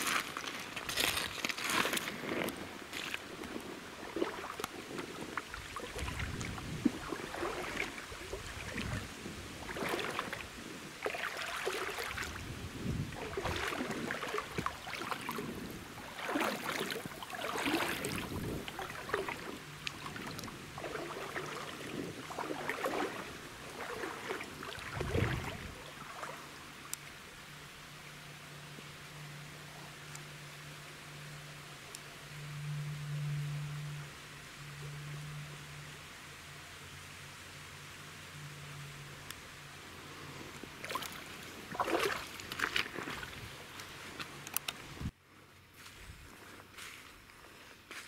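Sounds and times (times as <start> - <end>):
footsteps splashing through creek: 0.0 - 27.1, 40.6 - 45.1, 45.7 - 48.0.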